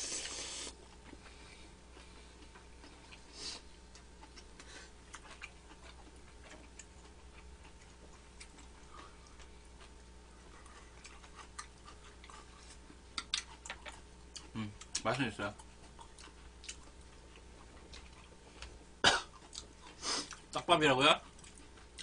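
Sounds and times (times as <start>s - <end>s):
slurping noodles: 0.0s - 0.8s
wet chewing and smacking: 0.8s - 20.6s, 21.2s - 22.0s.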